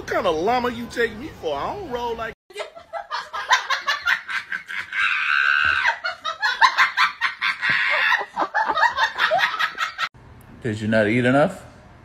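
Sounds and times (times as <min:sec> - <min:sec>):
people laughing hard: 0:02.5 - 0:10.1.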